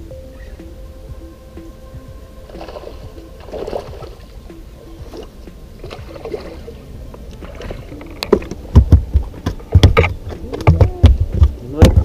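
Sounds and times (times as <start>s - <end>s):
heavy thumps on boat: 8.3s - 12.0s.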